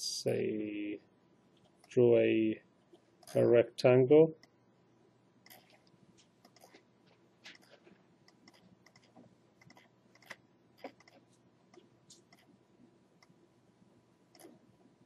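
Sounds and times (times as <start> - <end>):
computer mouse clicks: 8.3 - 12.5, 14.3 - 14.6.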